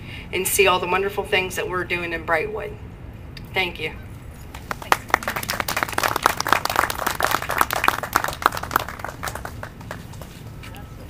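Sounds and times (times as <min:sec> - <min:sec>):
small crowd applauding: 0:04.5 - 0:10.5.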